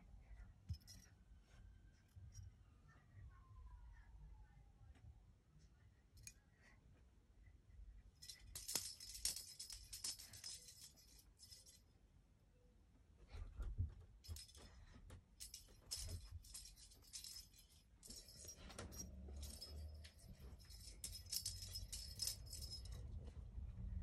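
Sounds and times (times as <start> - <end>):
cat toy jingling and rattling: 8.2 - 11.8, 14.2 - 23.3.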